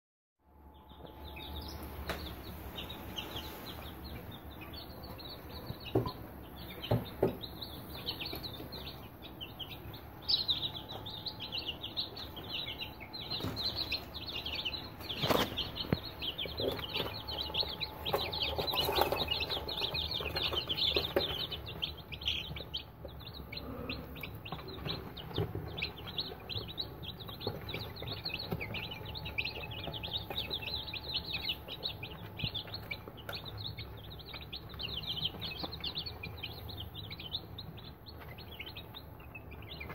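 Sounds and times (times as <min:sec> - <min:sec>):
chicks peeping: 0:00.6 - 0:39.9.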